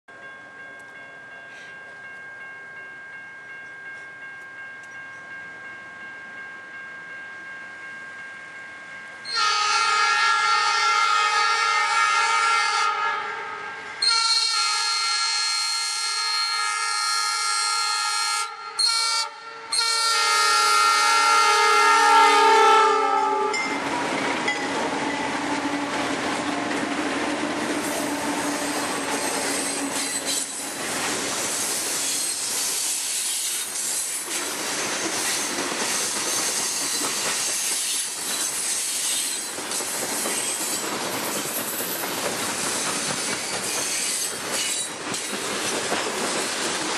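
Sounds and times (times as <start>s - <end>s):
high ringing of train rails: 0.1s - 46.9s
locomotive air horn: 9.3s - 23.6s
rumble of passing locomotives: 19.4s - 46.9s
train wheels on rails: 23.5s - 46.9s.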